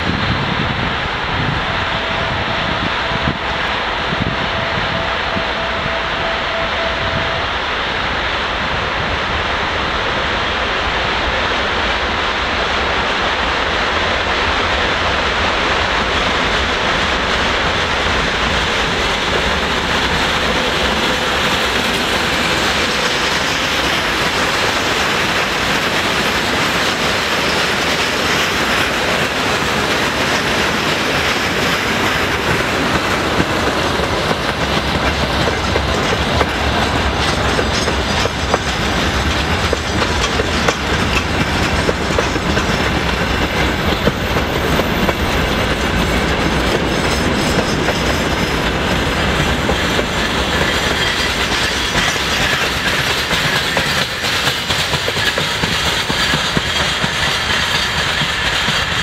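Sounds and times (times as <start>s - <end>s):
diesel locomotive passing: 0.0s - 59.0s
freight train rolling by: 0.0s - 59.0s
wheels clicking over rail joints: 20.9s - 59.0s.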